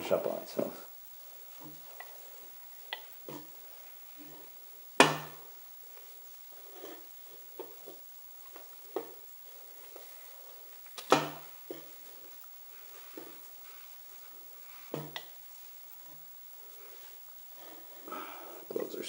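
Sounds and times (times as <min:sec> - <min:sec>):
light knocks and rustles: 0:06.6 - 0:15.4.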